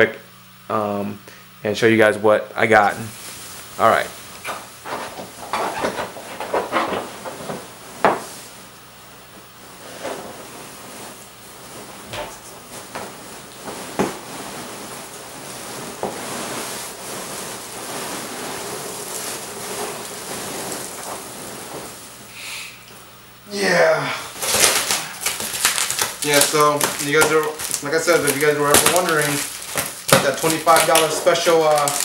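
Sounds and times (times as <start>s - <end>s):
packing peanuts rustling: 9.4s - 22.4s, 24.4s - 32.0s.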